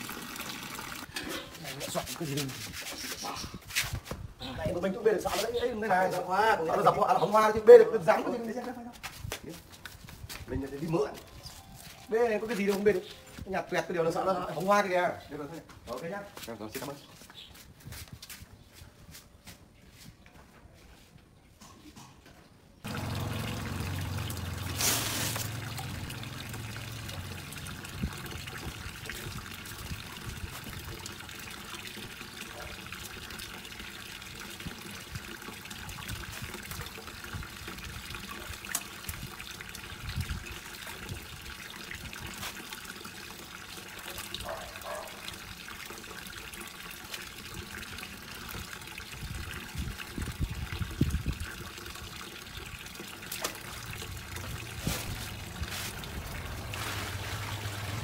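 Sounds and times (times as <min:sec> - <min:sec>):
water pouring into a tank: 0:00.0 - 0:02.5, 0:22.8 - 0:58.0
loud splash: 0:22.9 - 0:27.7, 0:53.3 - 0:58.0.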